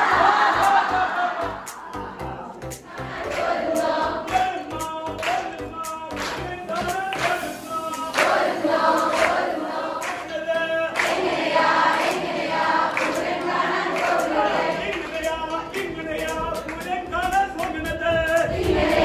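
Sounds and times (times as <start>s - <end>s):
group of women singing: 0.0s - 4.6s, 8.1s - 10.3s, 11.0s - 15.0s, 18.5s - 19.0s
sharp claps: 4.3s - 18.5s.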